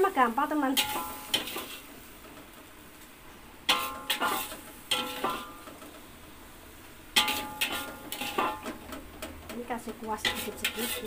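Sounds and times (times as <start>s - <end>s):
metal spatula scraping wok: 0.6s - 2.2s, 3.6s - 6.0s, 7.1s - 9.1s, 10.0s - 11.0s.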